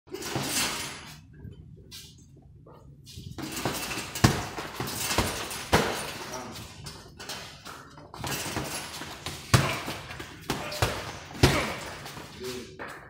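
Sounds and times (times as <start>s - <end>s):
punches thudding on heavy bag: 3.4s - 6.2s, 8.2s - 12.3s.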